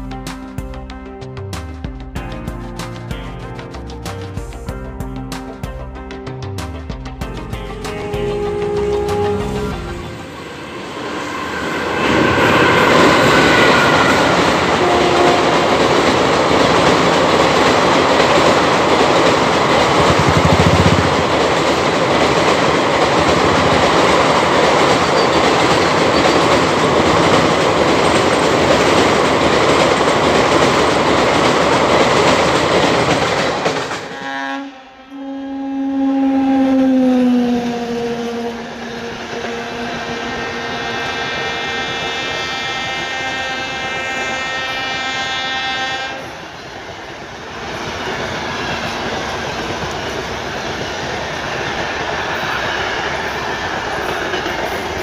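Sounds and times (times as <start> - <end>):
train rushing over bridge: 0.0 - 55.0.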